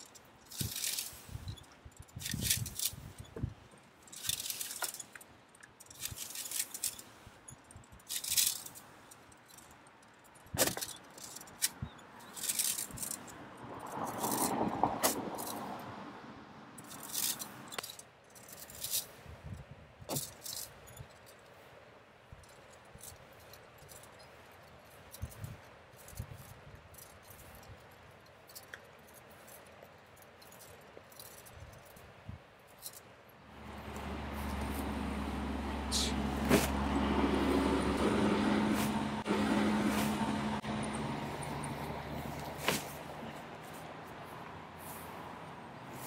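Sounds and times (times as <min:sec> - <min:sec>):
wire rake scratching grass: 0:00.0 - 0:09.6, 0:10.5 - 0:15.8, 0:16.8 - 0:20.8, 0:32.8 - 0:46.0
dull rustle: 0:00.0 - 0:15.7, 0:16.8 - 0:46.0.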